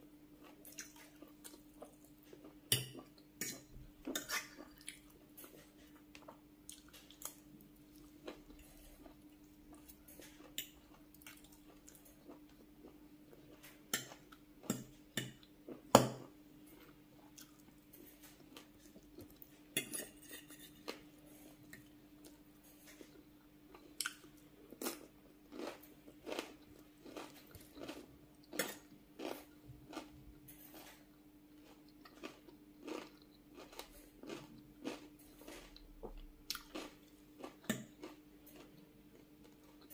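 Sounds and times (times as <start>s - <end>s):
faint steady hum: 0.0s - 39.9s
chewing and crunching: 0.4s - 15.5s, 16.7s - 39.9s
fork scraping glass bowl: 19.8s - 20.9s.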